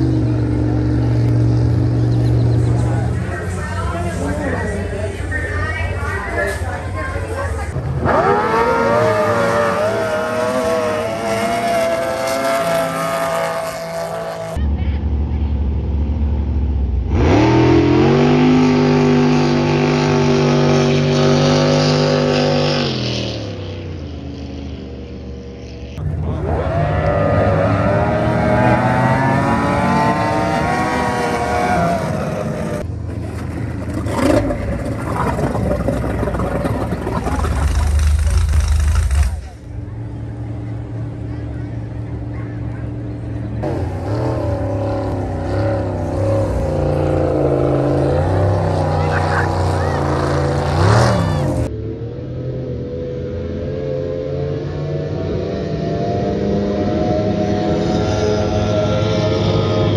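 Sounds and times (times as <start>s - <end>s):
race boat engines at full throttle: 17.7s - 59.9s.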